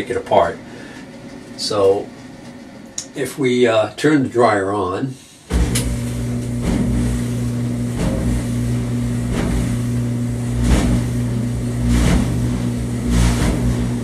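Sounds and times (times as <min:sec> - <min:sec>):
clothes dryer motor hum: 0:00.0 - 0:04.0, 0:04.6 - 0:14.0
dryer drum knocking: 0:05.5 - 0:14.0.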